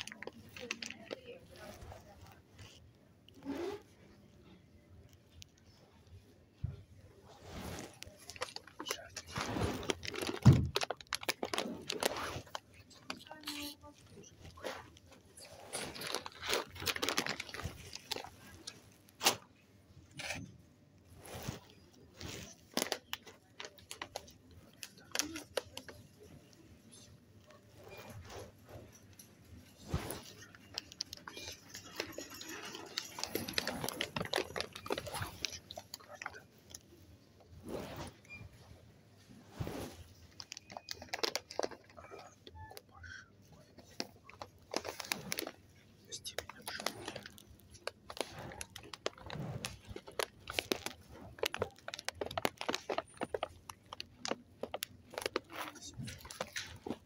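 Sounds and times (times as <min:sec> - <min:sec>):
coffee bag packaging crinkling: 0:00.0 - 0:02.8, 0:08.0 - 0:14.6, 0:15.3 - 0:18.8, 0:22.4 - 0:26.5, 0:30.0 - 0:36.9, 0:40.1 - 0:42.8, 0:43.6 - 0:57.0.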